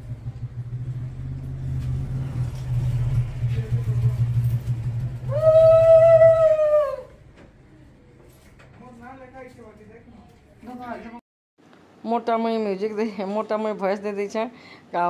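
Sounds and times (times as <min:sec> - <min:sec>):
low hum: 0:00.0 - 0:08.2.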